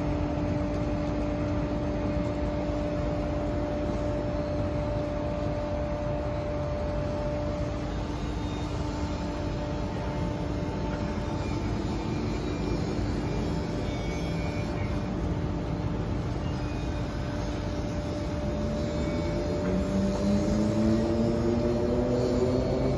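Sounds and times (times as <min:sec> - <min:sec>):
city traffic hum: 0:00.0 - 0:22.9
vehicle engine accelerating: 0:19.6 - 0:22.9.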